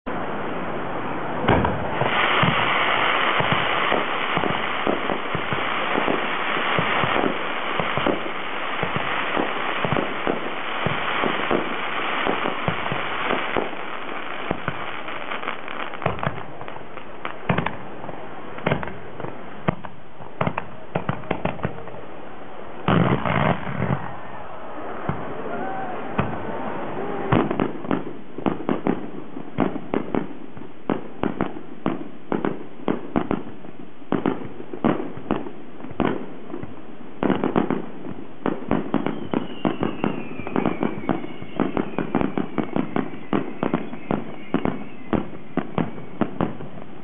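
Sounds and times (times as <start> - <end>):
fireworks bangs: 0.1 - 47.0
fireworks hissing: 0.4 - 22.0, 22.9 - 24.1, 37.2 - 47.0.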